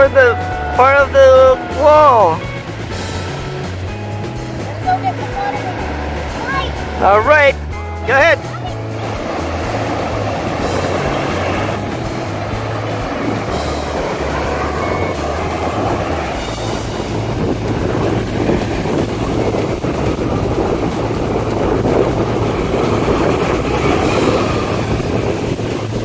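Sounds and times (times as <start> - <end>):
ocean surf washing in: 0.0 - 26.0
wind buffeting microphone: 0.0 - 26.0.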